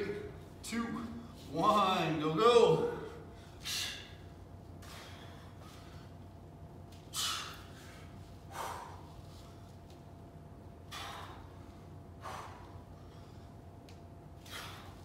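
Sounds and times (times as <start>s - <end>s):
man breathing forcefully: 3.1s - 6.4s, 7.0s - 9.8s, 10.7s - 15.0s.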